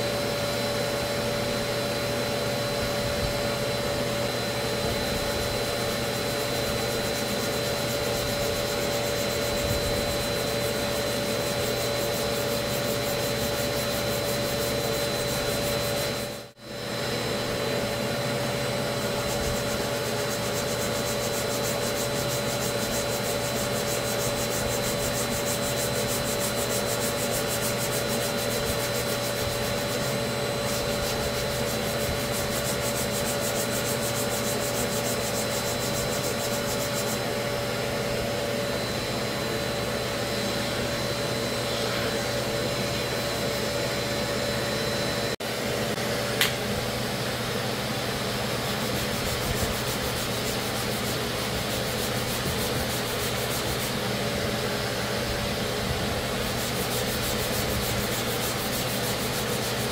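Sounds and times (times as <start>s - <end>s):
steady machine hum: 0.0s - 59.9s
hand sanding scratchy rubbing: 5.6s - 16.5s, 18.8s - 37.4s, 48.6s - 54.1s, 56.0s - 59.9s.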